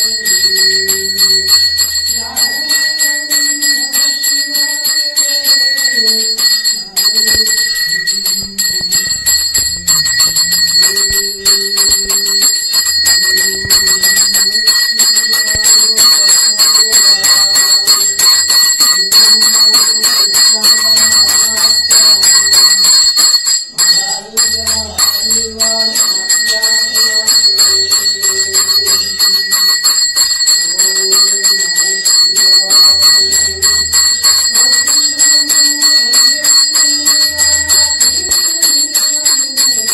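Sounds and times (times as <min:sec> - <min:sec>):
brass hand bell ringing: 0:00.0 - 0:39.9.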